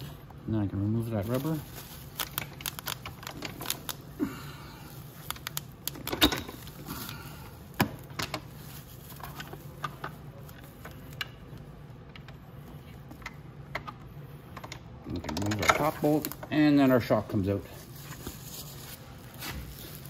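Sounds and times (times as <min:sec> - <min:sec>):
faint steady hum: 0:00.0 - 0:20.0
bubble wrap rustling: 0:01.0 - 0:11.2, 0:17.7 - 0:20.0.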